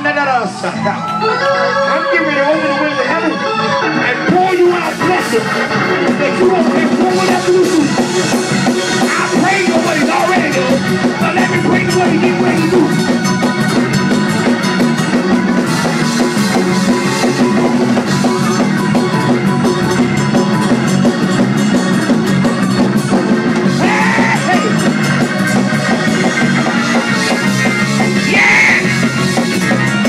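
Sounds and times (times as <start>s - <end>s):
church band playing: 0.0s - 30.0s
drum kit beat: 4.3s - 30.0s
person crying out: 23.8s - 24.8s, 28.3s - 29.0s.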